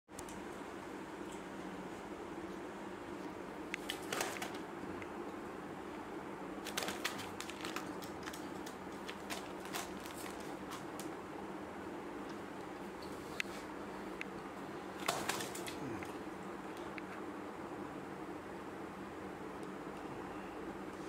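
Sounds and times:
steady low hum: 0:00.1 - 0:21.0
pigeon shuffling on newspaper: 0:03.8 - 0:04.7, 0:06.6 - 0:11.2, 0:15.0 - 0:15.8.

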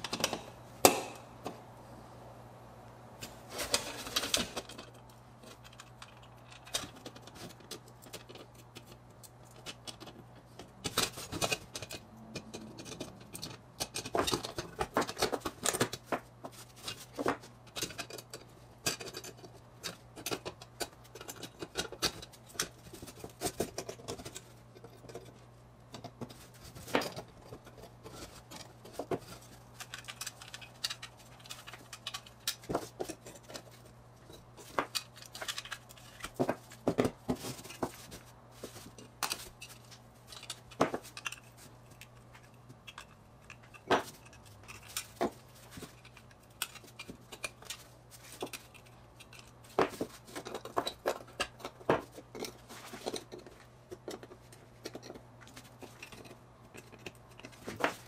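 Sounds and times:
pliers clicking and scraping metal: 0:03.2 - 0:58.0.

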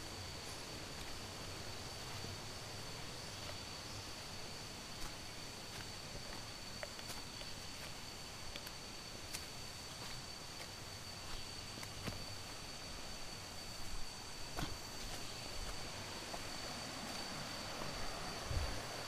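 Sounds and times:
high-pitched insect drone: 0:00.0 - 0:19.0
footsteps on stony path: 0:00.5 - 0:01.3, 0:04.9 - 0:18.8.

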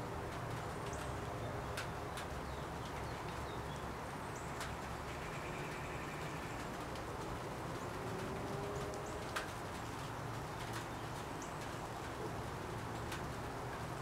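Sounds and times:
faint clicks: 0:06.6 - 0:13.4.

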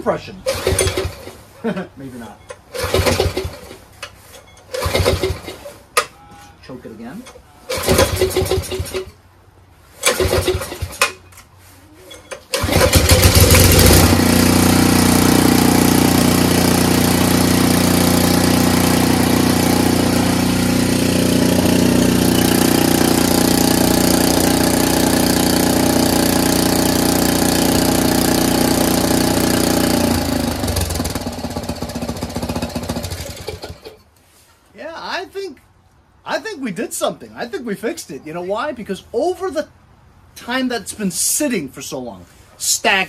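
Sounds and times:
recoil starter pull: 0:00.4 - 0:01.4, 0:02.5 - 0:06.1, 0:07.2 - 0:09.2, 0:10.0 - 0:11.5, 0:12.1 - 0:34.1
small engine running: 0:00.5 - 0:01.4, 0:02.7 - 0:03.8, 0:04.7 - 0:05.6, 0:07.7 - 0:09.1, 0:12.5 - 0:34.0.

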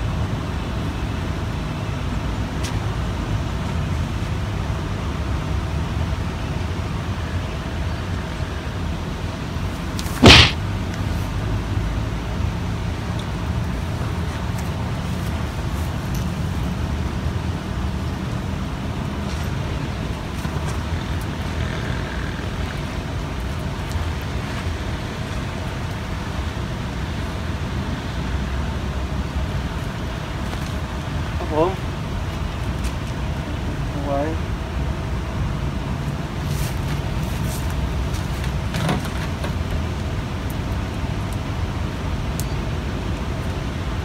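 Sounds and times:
sharp loud knock: 0:10.2 - 0:10.6.

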